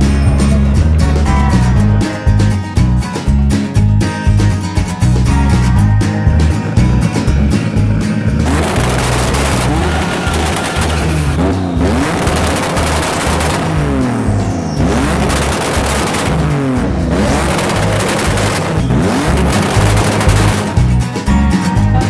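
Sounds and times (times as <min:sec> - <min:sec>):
race car engine revving: 0:00.0 - 0:22.0
exhaust crackling pops: 0:05.2 - 0:21.3.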